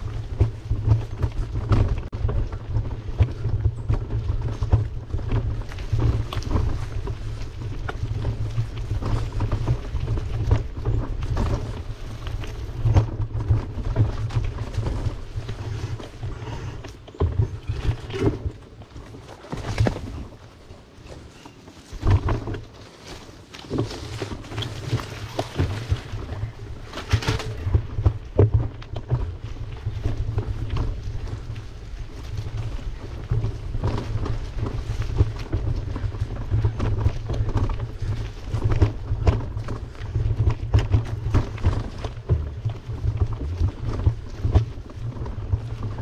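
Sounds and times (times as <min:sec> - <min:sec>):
wind buffeting a microphone: 0:00.0 - 0:46.0.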